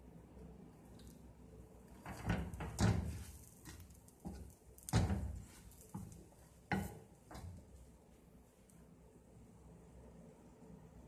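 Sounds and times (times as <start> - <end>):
spatula scraping frying pan: 2.0 - 7.8.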